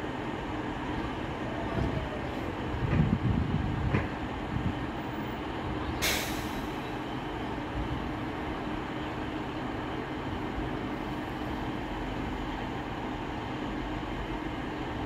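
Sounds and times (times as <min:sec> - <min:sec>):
diesel train idling: 0:00.0 - 0:15.0
compressed air hiss: 0:06.0 - 0:06.8.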